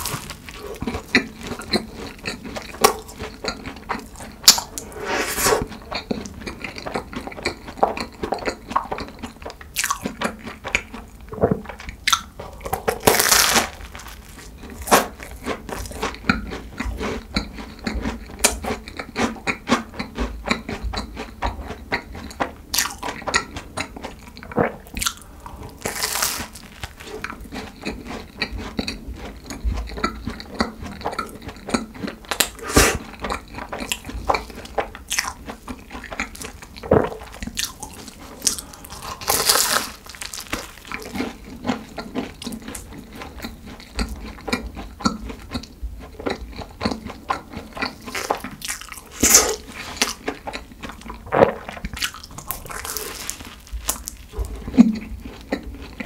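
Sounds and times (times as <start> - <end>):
pastry crunching while chewing: 0.0 - 56.0
wet mouth sounds: 0.0 - 56.0.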